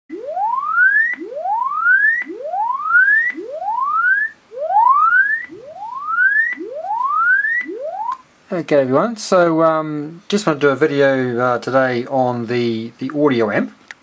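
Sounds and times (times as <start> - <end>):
swept test tone from loudspeaker: 0.1 - 8.2.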